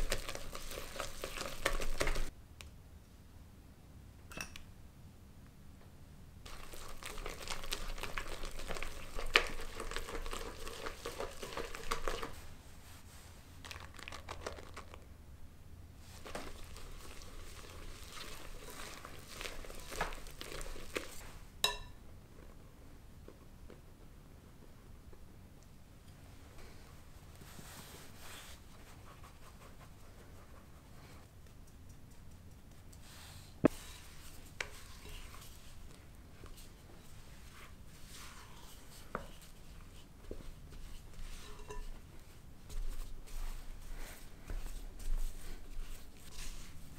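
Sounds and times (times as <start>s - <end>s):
batter rustling wetly: 0.0s - 2.3s, 6.5s - 15.1s, 16.0s - 21.5s, 33.0s - 46.9s
flour sifting through sieve: 0.0s - 2.3s, 6.5s - 15.1s, 16.0s - 21.5s, 26.6s - 31.2s, 32.8s - 46.9s.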